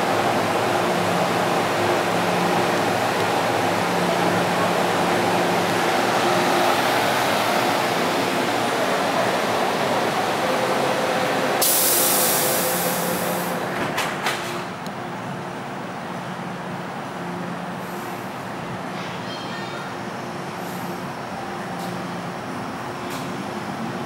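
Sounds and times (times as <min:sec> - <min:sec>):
train equipment humming: 0:00.0 - 0:13.8
sharp hiss: 0:11.6 - 0:13.6.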